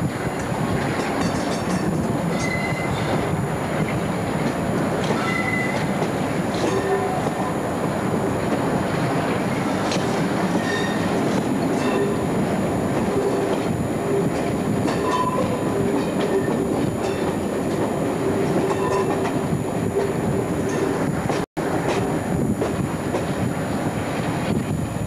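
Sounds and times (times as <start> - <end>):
train wheels rumbling on rail: 0.0 - 25.0
wheel flange squeals: 2.3 - 3.2, 5.1 - 5.9, 10.6 - 11.2.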